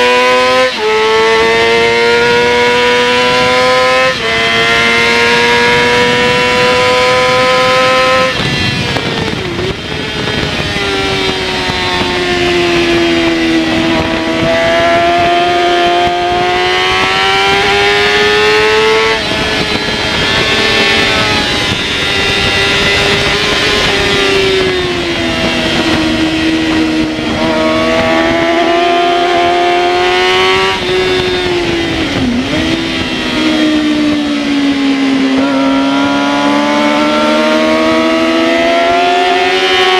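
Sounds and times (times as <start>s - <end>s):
race engine at high revs: 0.0s - 39.9s.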